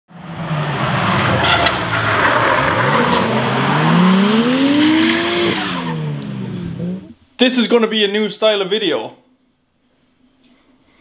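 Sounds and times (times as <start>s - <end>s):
car engine revving: 0.1s - 7.2s.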